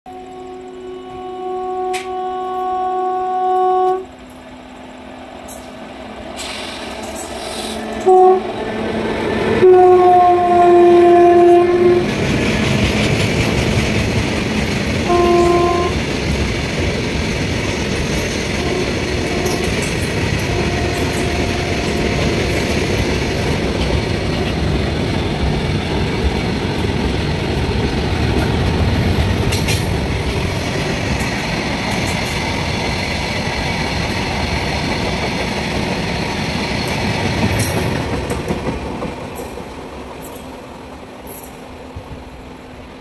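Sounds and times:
freight train rumbling past: 0.1s - 43.0s
wheels clicking over rail joints: 11.4s - 41.7s.

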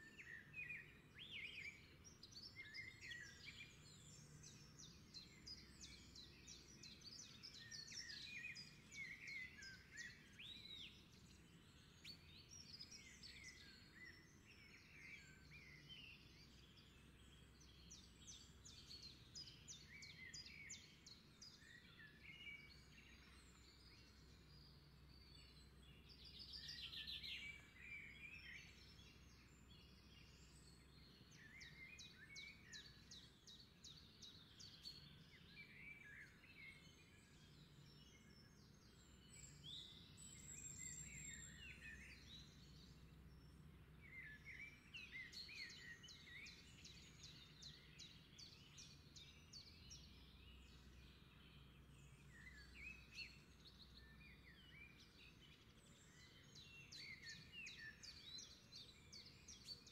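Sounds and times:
birds chirping and trilling: 26.2s - 59.9s.

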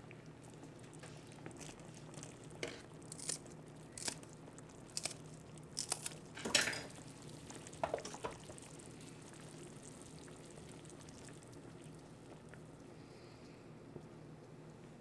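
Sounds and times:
soup bubbling in a pot: 0.0s - 14.8s
scissors snipping: 4.0s - 4.2s, 5.0s - 5.2s, 5.8s - 6.2s.

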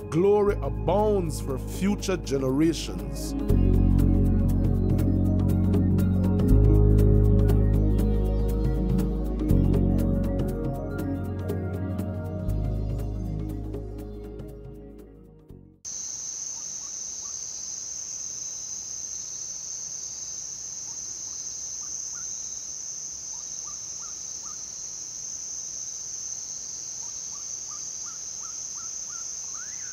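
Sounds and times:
high-pitched insect chorus: 15.9s - 29.9s
faint short chirping calls: 26.9s - 29.9s.

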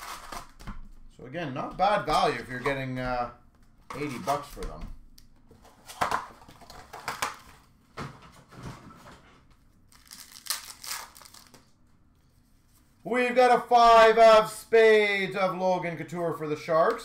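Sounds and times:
plastic wrapper crinkling and tearing: 9.8s - 11.7s.

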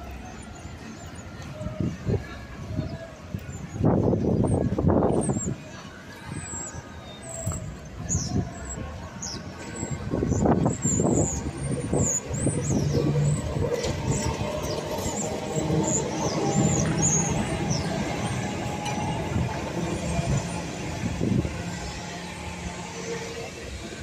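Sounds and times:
tram rumbling on rails: 0.0s - 24.0s
wheels squealing on track: 9.6s - 24.0s.

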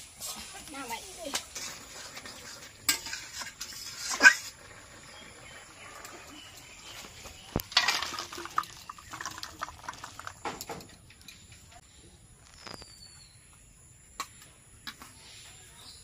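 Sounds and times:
metal ladle scraping wok: 1.4s - 6.8s.

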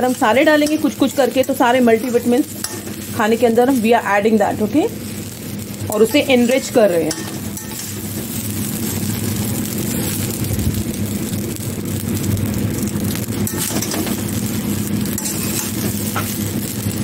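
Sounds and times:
spatula scraping rice in pan: 15.2s - 16.3s.

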